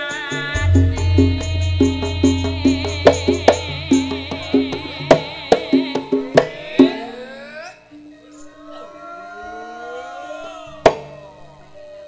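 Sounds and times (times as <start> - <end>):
large gong hum: 0.5 - 4.6
metallophone and gong notes: 0.5 - 5.5
sharp drum strokes: 0.5 - 5.8.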